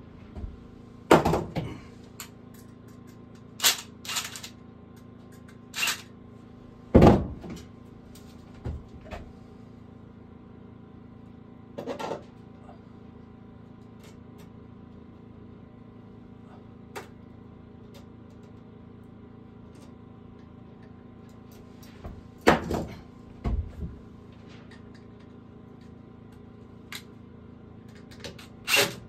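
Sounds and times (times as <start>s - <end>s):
wooden knocks and thuds: 0.3s - 1.8s, 6.9s - 7.6s, 22.0s - 24.0s.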